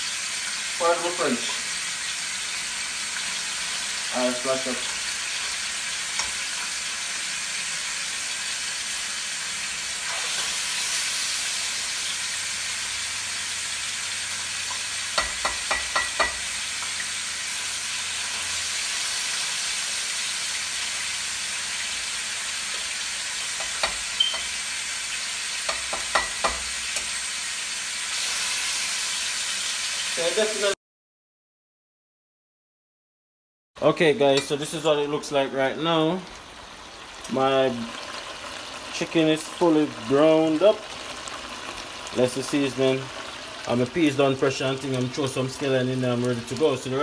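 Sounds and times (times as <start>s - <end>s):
chicken sizzling in hot oil: 0.0s - 30.8s, 34.4s - 47.0s.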